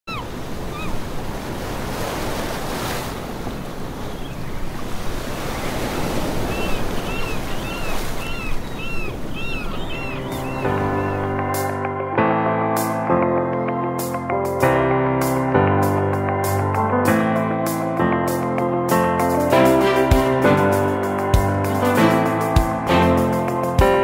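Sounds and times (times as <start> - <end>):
bird calling: 0.1 - 1.1, 5.4 - 11.7
ocean surf washing: 0.1 - 14.3, 15.2 - 24.0
music: 9.9 - 24.0.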